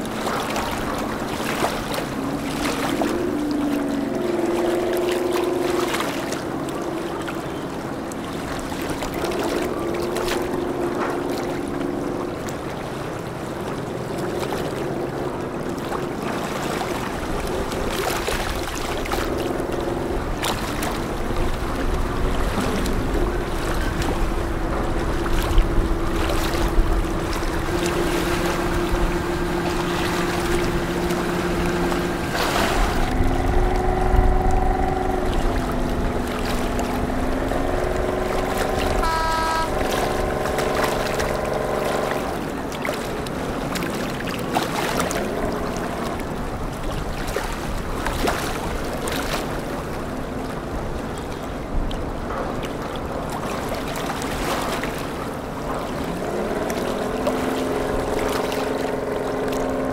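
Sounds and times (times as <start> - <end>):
boat engines droning: 0.0 - 59.9
wind and water rushing: 0.0 - 59.9
boat horn toot: 22.2 - 42.7.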